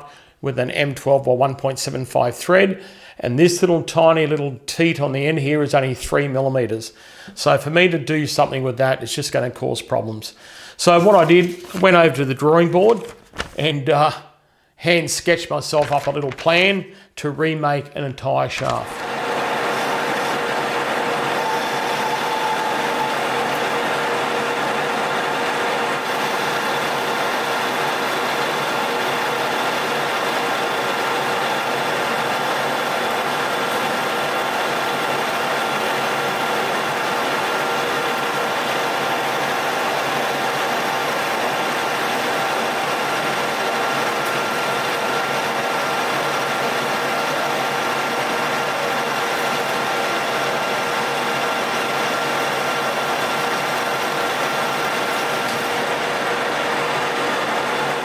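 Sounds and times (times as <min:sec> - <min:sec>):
steady machine whine: 0:18.8 - 0:58.0
metal lathe running: 0:18.9 - 0:58.0.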